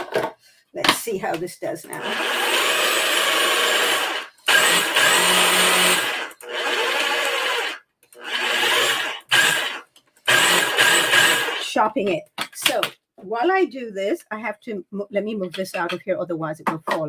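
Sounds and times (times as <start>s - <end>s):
food processor motor pulsing: 1.9s - 11.7s.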